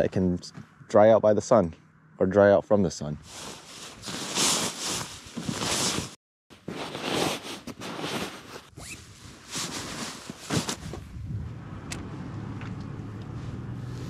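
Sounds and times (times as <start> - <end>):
sleeping bag rustling: 3.2 - 11.1.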